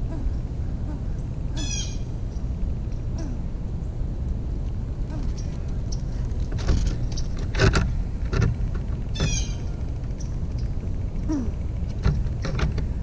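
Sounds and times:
low outdoor rumble: 0.0s - 13.0s
squirrel scraping and knocking: 5.2s - 9.6s, 11.9s - 13.0s.

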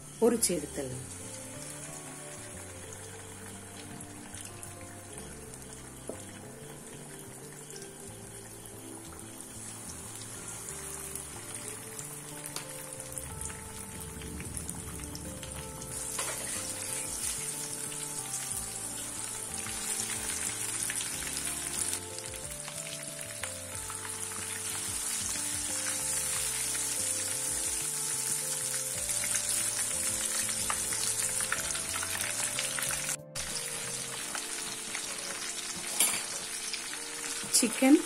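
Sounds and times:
chicken sizzling in hot oil: 0.0s - 38.0s
light background music: 0.0s - 38.0s.

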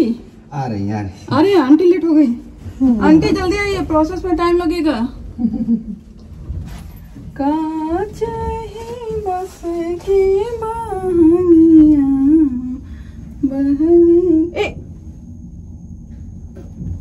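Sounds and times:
woman singing unaccompanied: 7.4s - 12.8s.

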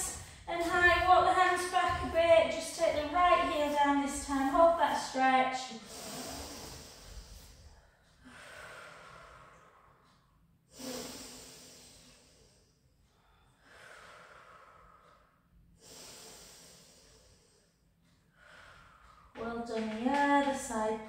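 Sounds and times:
woman breathing deeply: 5.7s - 19.4s.

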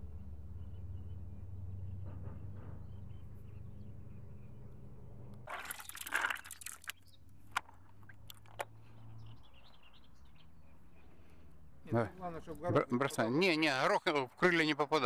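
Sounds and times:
wet groundbait squelching: 5.5s - 8.8s.

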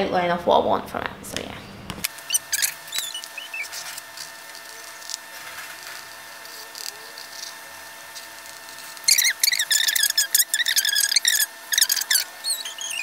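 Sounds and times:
steady hum: 0.0s - 13.0s
small clicks and squeaks: 2.1s - 13.0s
pencil scratching on board: 2.3s - 13.0s.

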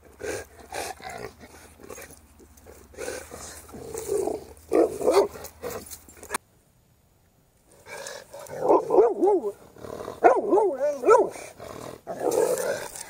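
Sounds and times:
dog growling and grunting: 7.9s - 13.0s.

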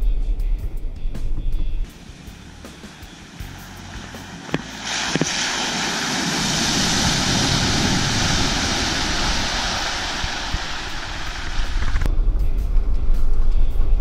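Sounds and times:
tyres splashing through water: 1.9s - 12.0s
car engine: 1.9s - 12.1s.

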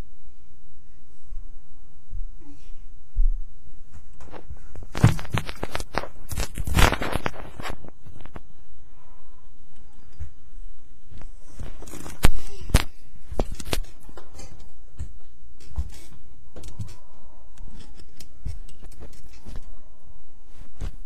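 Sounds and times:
rustling: 4.0s - 8.6s.

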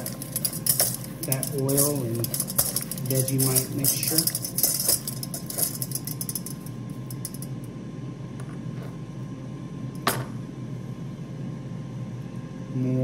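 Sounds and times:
low fan-like hum: 0.0s - 13.0s.

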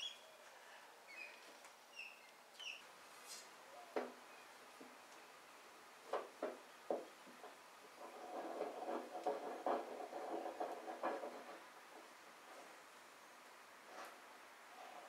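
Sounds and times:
clamp screw creaking and rattling: 8.0s - 11.6s.

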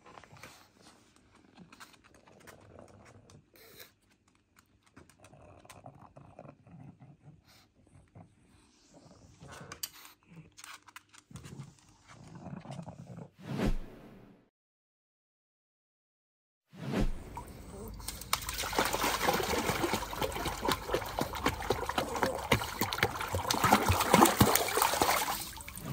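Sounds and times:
dog sniffing and snuffling: 0.0s - 4.2s.

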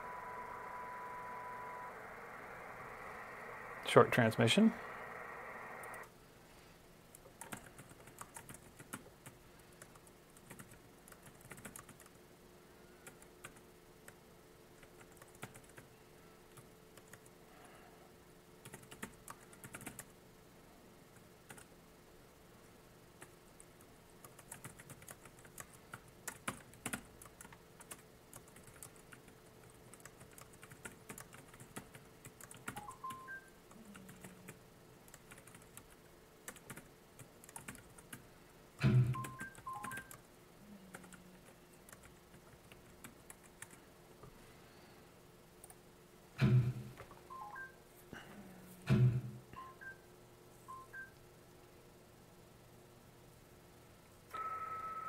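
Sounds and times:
typing on a computer keyboard: 7.1s - 12.2s, 13.0s - 14.2s, 14.8s - 15.9s, 16.5s - 17.3s, 18.6s - 20.2s, 21.4s - 21.7s, 23.2s - 38.2s, 38.9s - 40.2s, 40.9s - 43.8s.

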